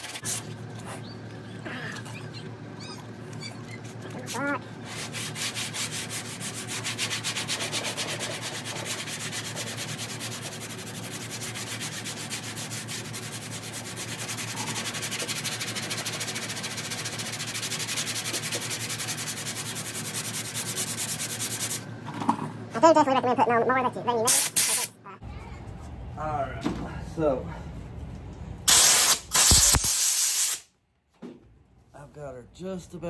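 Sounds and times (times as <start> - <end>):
sandpaper rasping on filler: 4.8 - 21.8.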